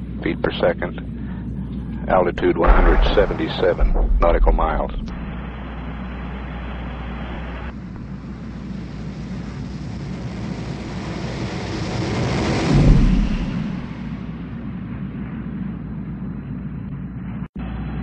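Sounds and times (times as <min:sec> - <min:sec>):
radio hiss: 0:02.1 - 0:07.7
low boom: 0:02.6 - 0:07.7, 0:12.4 - 0:17.0
rumbling whoosh: 0:02.6 - 0:07.7, 0:11.7 - 0:14.6.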